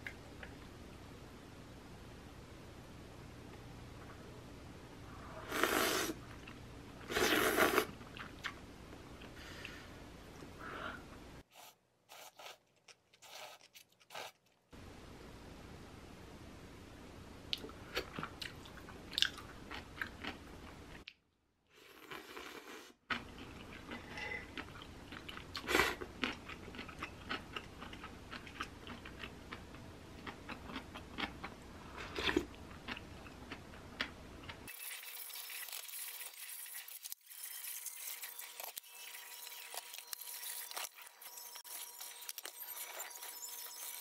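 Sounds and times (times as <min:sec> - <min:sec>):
chewing: 0:23.1 - 0:34.6.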